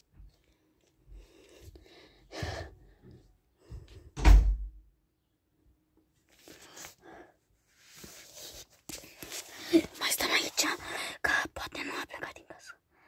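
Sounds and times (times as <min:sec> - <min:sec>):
loud deep thump: 0:04.2 - 0:04.8.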